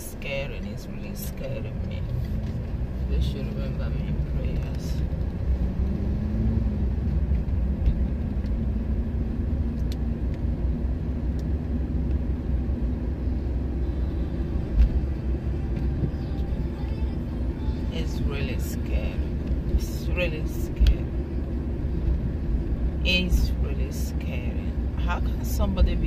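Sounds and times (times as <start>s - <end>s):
car engine and road rumble: 0.0s - 26.0s.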